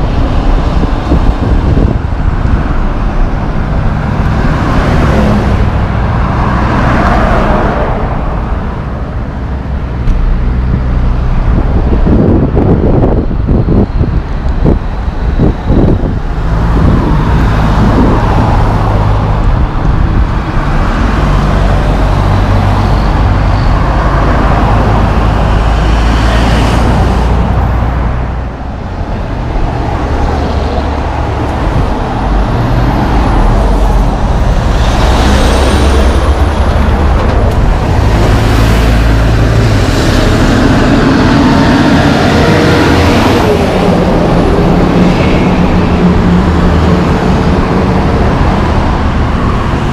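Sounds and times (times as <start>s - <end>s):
loaded truck passing close: 0.0s - 49.9s
trucks and cars passing: 0.0s - 49.9s.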